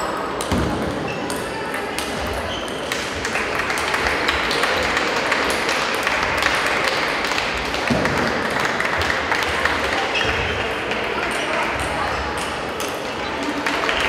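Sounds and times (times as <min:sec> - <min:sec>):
hall hubbub: 0:00.0 - 0:14.0.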